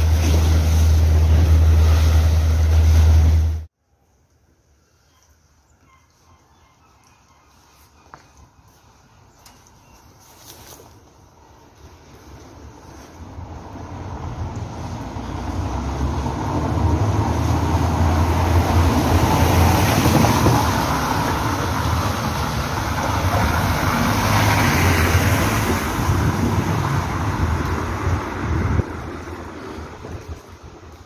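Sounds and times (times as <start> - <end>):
low engine hum: 0.0 - 3.7, 13.1 - 31.0
tyres hissing on wet road: 12.3 - 31.0.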